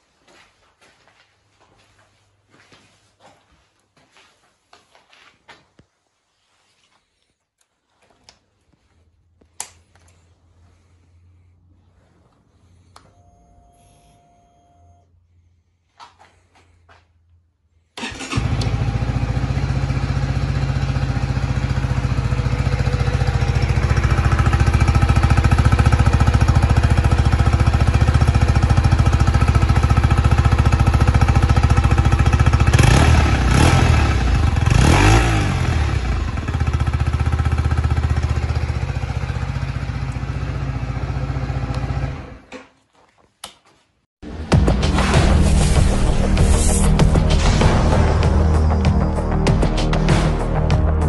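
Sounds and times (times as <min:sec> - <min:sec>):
motorcycle engine starting and idling: 0:17.9 - 0:42.8.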